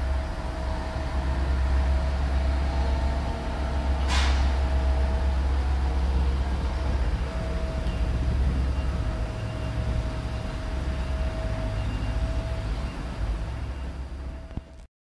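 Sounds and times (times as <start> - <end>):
diesel engine rumbling: 0.0 - 14.9
thin steady whine: 0.0 - 14.9.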